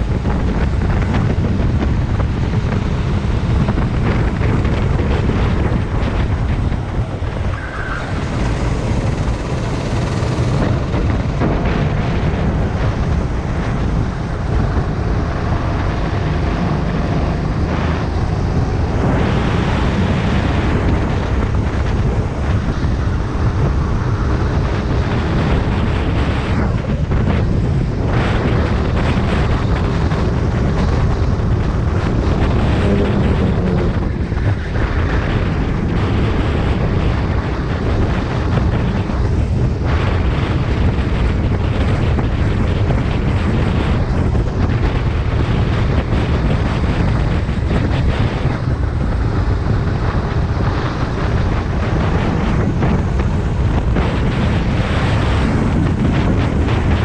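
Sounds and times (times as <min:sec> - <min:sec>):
kart engine running: 0:00.0 - 0:57.0
wind buffeting microphone: 0:00.0 - 0:57.0.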